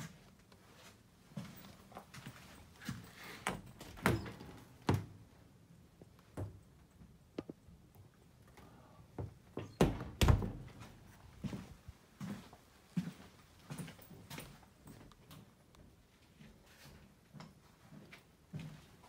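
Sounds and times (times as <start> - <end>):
wooden doors knocking and thudding: 9.2 - 11.0.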